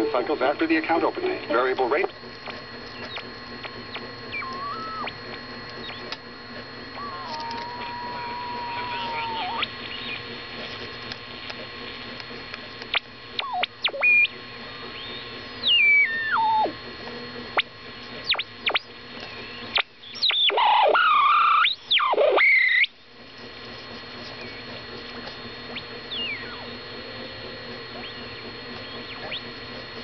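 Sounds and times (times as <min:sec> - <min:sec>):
radio static hiss: 0:00.0 - 0:30.0
radio whistles swooping in pitch: 0:03.0 - 0:06.1, 0:06.9 - 0:10.2, 0:12.9 - 0:16.7, 0:25.7 - 0:26.7.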